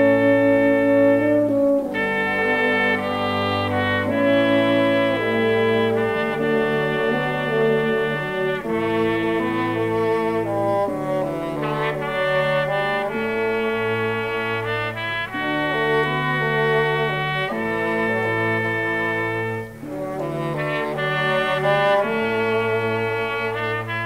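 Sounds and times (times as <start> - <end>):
sustained chord music: 0.0 - 14.7.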